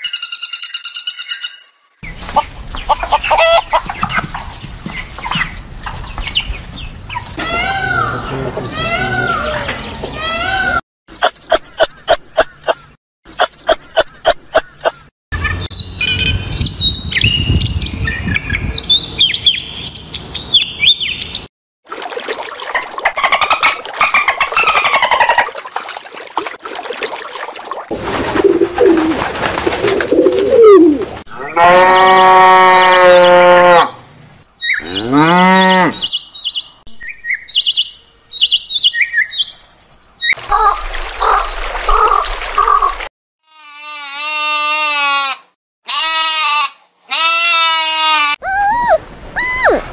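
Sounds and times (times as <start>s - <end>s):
bird calls and chirps: 0.0s - 10.1s, 11.1s - 21.5s, 33.9s - 41.7s.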